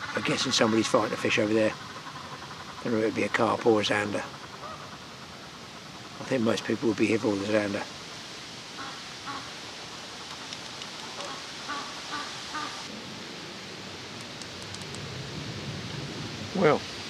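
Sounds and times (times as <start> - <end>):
waterfowl calling: 0.0 - 7.8, 8.7 - 12.9
steady hiss: 0.0 - 17.0
light clicks: 10.2 - 11.2, 14.2 - 15.0.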